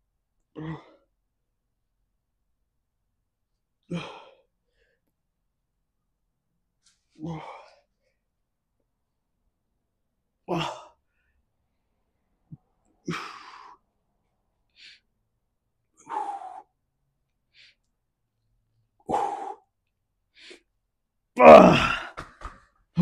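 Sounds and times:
faint breaths in: 14.7s - 15.1s.

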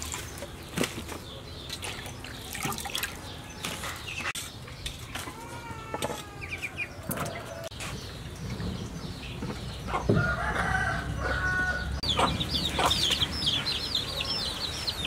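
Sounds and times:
chickens calling: 0.0s - 15.0s.

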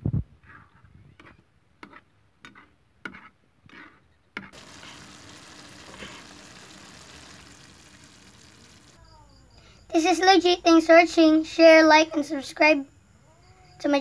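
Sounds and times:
frying hiss: 4.5s - 9.3s.

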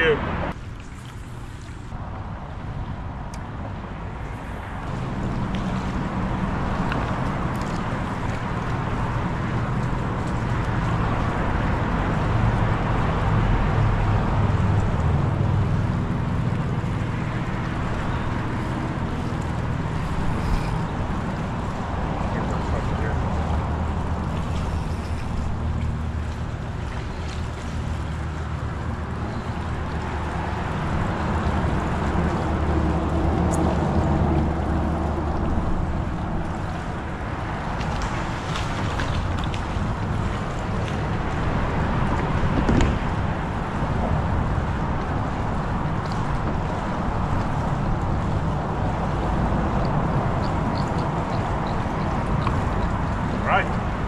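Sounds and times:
water noise: 0.0s - 54.0s
wind: 0.0s - 54.0s
low drone: 0.2s - 38.8s.

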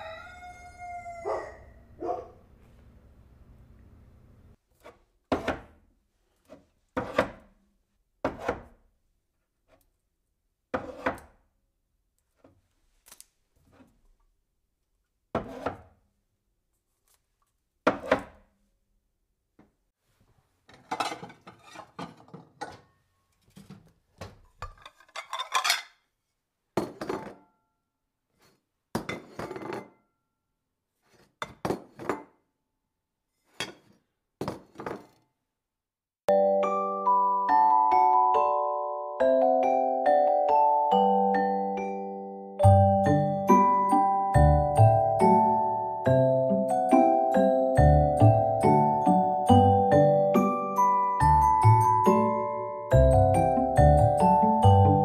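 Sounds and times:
pot and dishes clinking: 24.6s - 25.9s.

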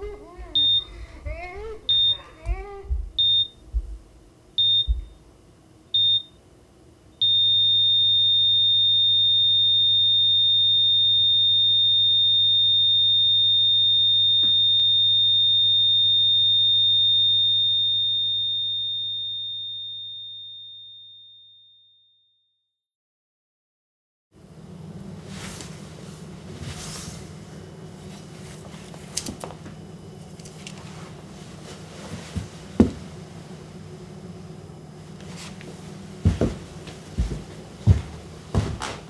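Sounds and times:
heart monitor beeps: 0.5s - 1.2s, 1.9s - 4.0s, 4.6s - 5.2s, 6.0s - 6.4s, 7.2s - 20.7s.

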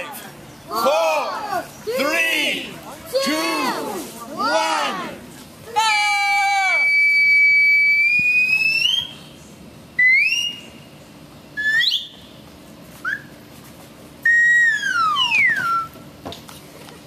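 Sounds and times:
slide whistle notes: 6.7s - 9.2s, 10.0s - 10.8s, 11.6s - 12.3s, 13.0s - 13.3s, 14.2s - 16.0s.

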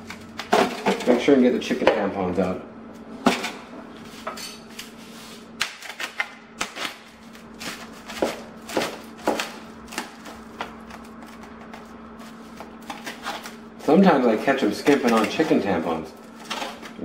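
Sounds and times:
knife tapping and scraping plastic: 7.6s - 11.9s, 14.5s - 15.6s.

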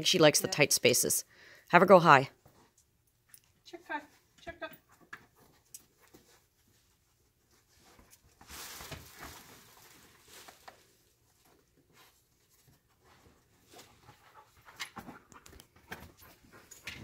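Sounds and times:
rustling of bags: 7.8s - 12.7s.

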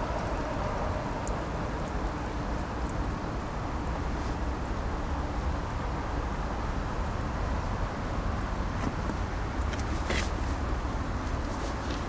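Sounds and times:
low rumble and hiss: 0.0s - 12.0s
faint high ticks: 1.2s - 2.2s.

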